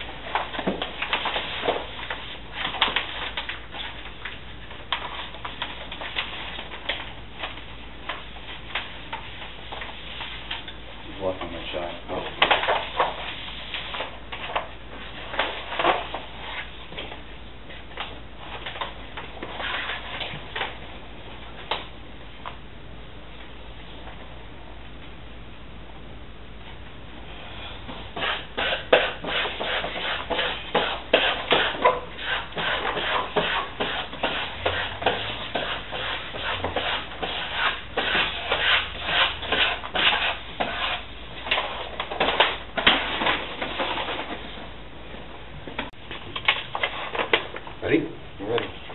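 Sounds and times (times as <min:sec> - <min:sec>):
steady low hum: 0:00.0 - 0:48.9
paper rustling and crinkling: 0:00.2 - 0:10.7.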